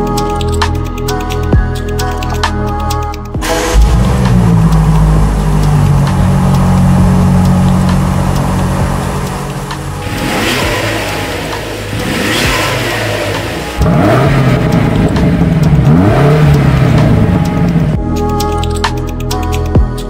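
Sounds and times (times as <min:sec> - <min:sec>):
car engine starting and idling: 0:00.0 - 0:19.8
car engine revving: 0:03.4 - 0:18.1.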